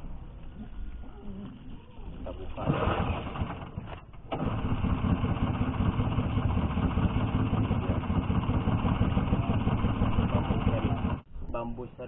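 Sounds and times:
outboard engine running: 0:04.3 - 0:11.2.

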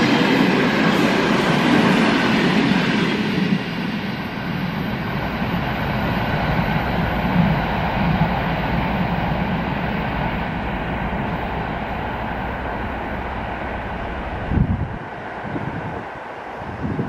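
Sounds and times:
electric train rumbling on track: 0:00.0 - 0:17.0.

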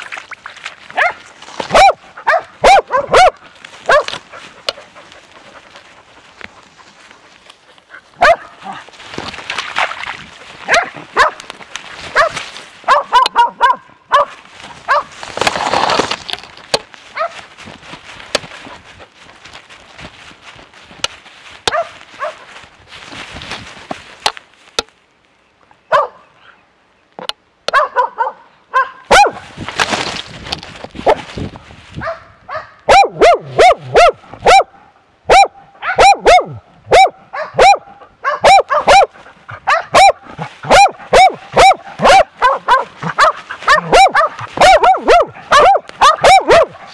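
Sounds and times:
brush rustling against camera: 0:00.0 - 0:25.1, 0:29.1 - 0:32.3, 0:38.5 - 0:46.9
dog barking close: 0:00.9 - 0:04.8, 0:07.9 - 0:08.8, 0:10.6 - 0:11.5, 0:12.1 - 0:15.2, 0:17.1 - 0:17.4, 0:21.6 - 0:22.5, 0:25.9 - 0:26.3, 0:27.7 - 0:29.5, 0:32.0 - 0:46.9.

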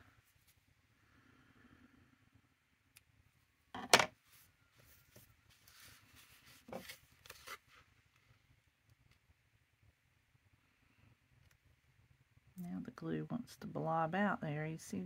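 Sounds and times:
paper rustling: 0:05.1 - 0:07.8.

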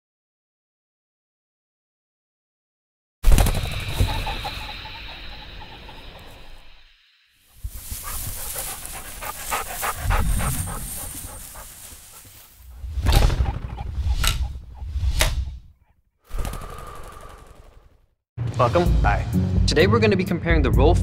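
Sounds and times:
rapid flutter noise: 0:03.2 - 0:05.0, 0:16.3 - 0:18.0.

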